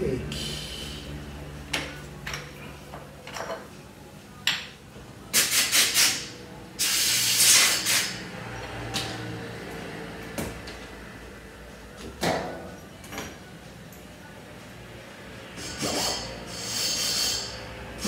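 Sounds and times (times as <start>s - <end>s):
pressurised spray hissing: 6.8s - 8.2s.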